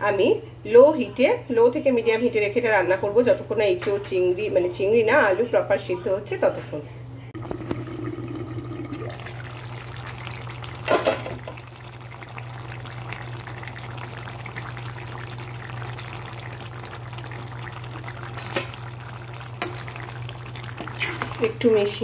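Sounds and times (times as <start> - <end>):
gravy bubbling in a pan: 7.4 - 22.0.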